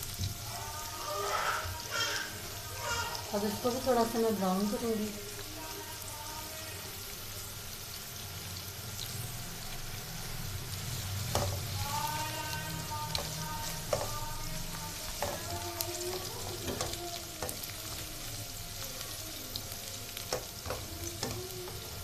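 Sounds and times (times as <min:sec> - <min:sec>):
onions sizzling in hot oil: 0:00.0 - 0:22.0
spatula scraping and tapping pan: 0:15.1 - 0:18.1, 0:20.3 - 0:21.5.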